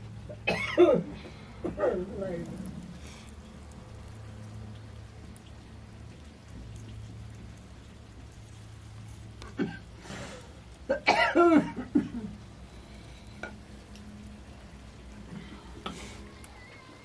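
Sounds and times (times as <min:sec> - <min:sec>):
person coughing: 0:00.4 - 0:01.1, 0:09.6 - 0:09.8, 0:10.9 - 0:12.3.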